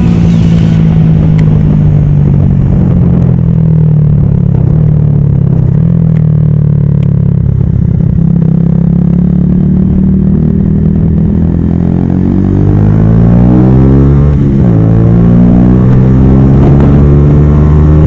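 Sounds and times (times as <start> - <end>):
motorcycle engine cruising: 0.0 - 18.0.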